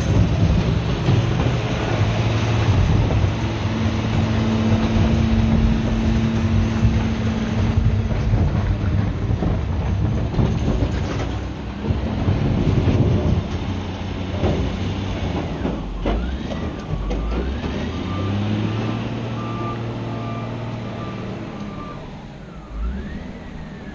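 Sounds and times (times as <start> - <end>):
scattered knocks: 0.0 - 18.0
heavy diesel engine under load: 0.0 - 23.9
reversing alarm beeping: 17.0 - 23.9.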